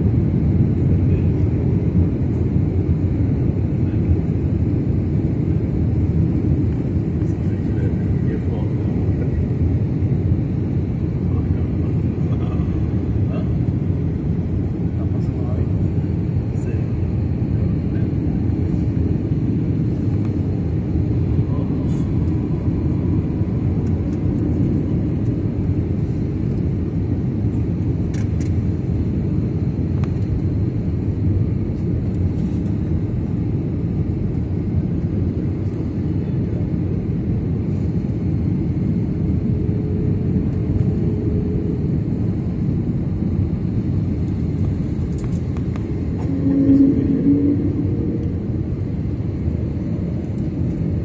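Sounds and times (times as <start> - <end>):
jet engine cabin rumble: 0.0 - 51.0
short humming tone: 46.1 - 48.8.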